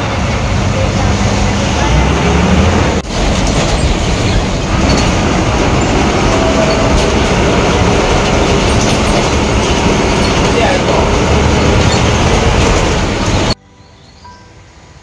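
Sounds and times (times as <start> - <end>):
bus diesel engine running: 0.0 - 15.0
body panels rattling: 3.0 - 13.6.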